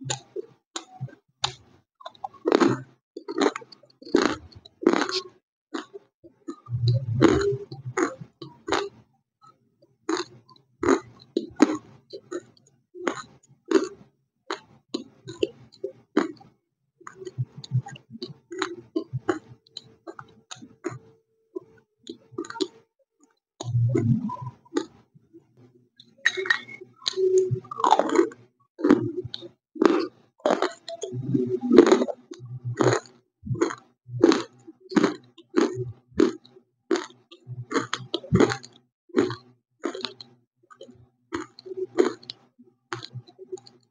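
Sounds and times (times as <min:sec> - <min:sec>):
crunchy chewing: 0:00.1 - 0:09.0, 0:10.1 - 0:16.5, 0:17.1 - 0:21.0, 0:21.6 - 0:22.8, 0:23.6 - 0:25.0, 0:26.7 - 0:43.8.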